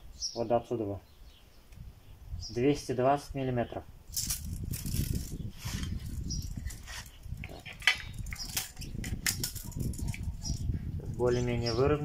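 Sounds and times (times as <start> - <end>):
tape measure metallic clicks: 4.1 - 10.7.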